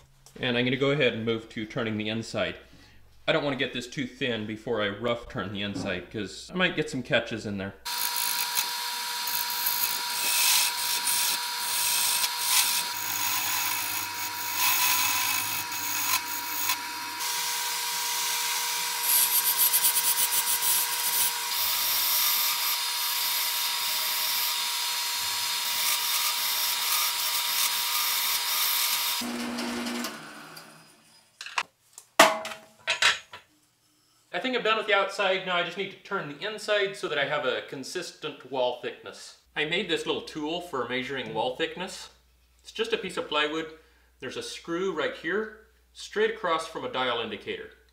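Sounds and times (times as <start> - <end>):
lathe tool cutting wood: 7.9 - 30.8
lathe whine: 7.9 - 31.2.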